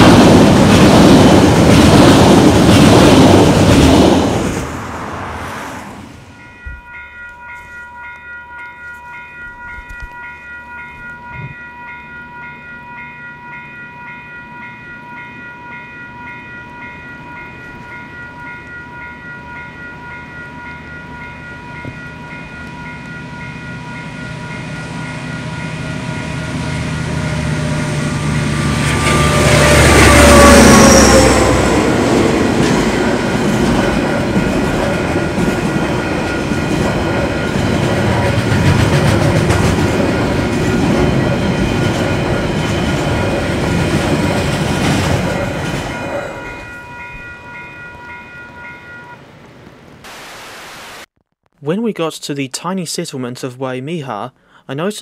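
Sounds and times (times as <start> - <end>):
diesel locomotives passing: 0.0 - 49.9
freight train wagons rumbling: 0.0 - 49.9
level crossing bell ringing: 6.4 - 33.6, 45.4 - 49.2.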